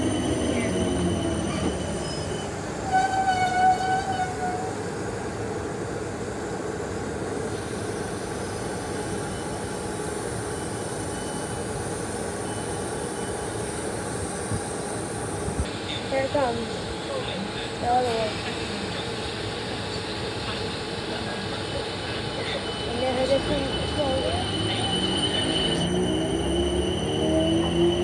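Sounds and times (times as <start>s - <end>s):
train rumbling: 0.0s - 28.0s
train horn: 2.8s - 4.8s.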